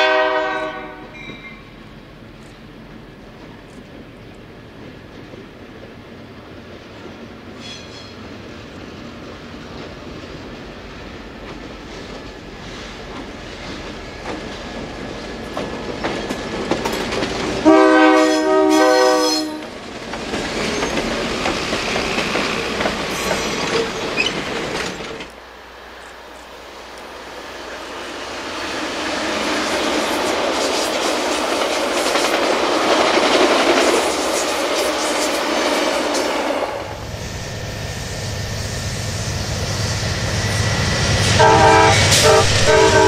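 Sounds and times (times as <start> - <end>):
train horn blast: 0.0 - 1.3, 17.6 - 19.7, 41.3 - 43.0
diesel locomotive running: 0.0 - 43.0
passenger cars rolling on rails: 0.0 - 43.0.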